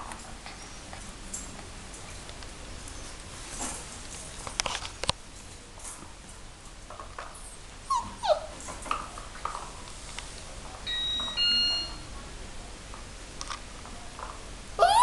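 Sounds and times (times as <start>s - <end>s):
puppies yipping and whimpering: 7.9s - 8.5s, 14.8s - 15.0s
puppy high squeaks: 7.9s - 8.5s, 14.8s - 15.0s.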